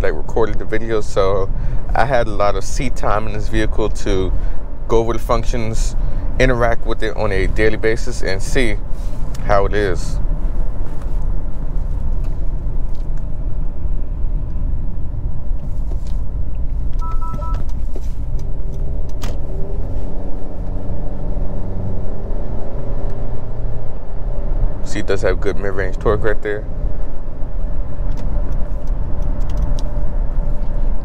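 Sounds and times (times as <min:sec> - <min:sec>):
road rumble in car cabin: 0:00.0 - 0:31.0
car engine revving: 0:00.6 - 0:31.0
two-tone chime: 0:17.0 - 0:17.6.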